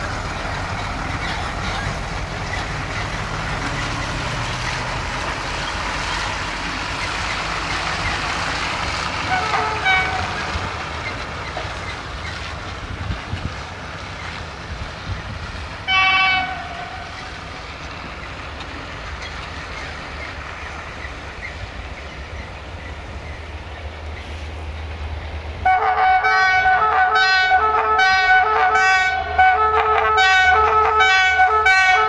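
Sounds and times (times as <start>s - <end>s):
low train rumble: 0.0s - 32.0s
locomotive air horn blasts: 9.3s - 10.5s, 15.9s - 17.1s, 25.6s - 32.0s.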